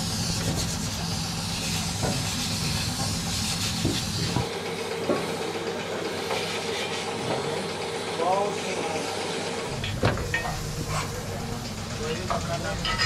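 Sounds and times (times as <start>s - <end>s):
paint spray gun hissing: 0.0s - 4.5s
steady low hum: 9.2s - 13.0s.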